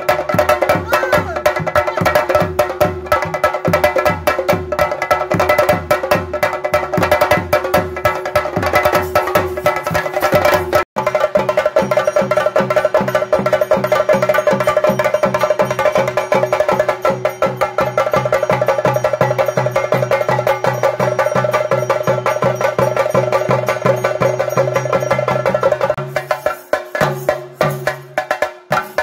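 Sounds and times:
fast ritual drumming: 0.0 - 29.0
cymbals: 7.7 - 29.0.

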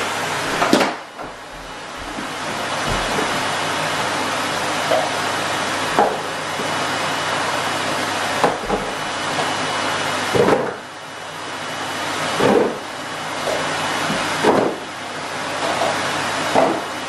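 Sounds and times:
plastic tubs knocking into cardboard box: 14.1 - 14.8.

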